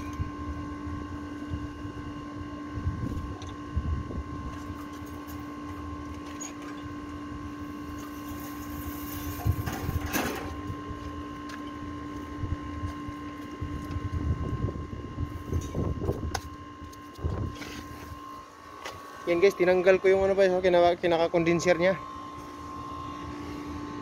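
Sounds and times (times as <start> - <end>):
mechanical hum: 0.0 - 24.0.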